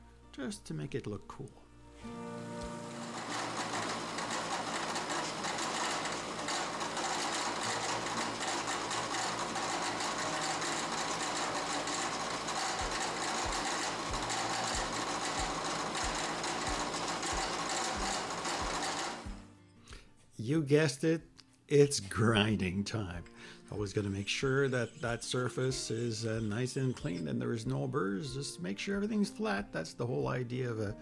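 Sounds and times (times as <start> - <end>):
milling machine cutting metal: 2.7 - 19.4.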